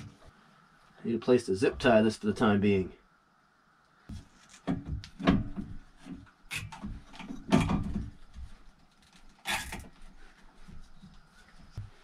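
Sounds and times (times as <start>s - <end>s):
knocks and clunks of parts: 4.1s - 10.0s.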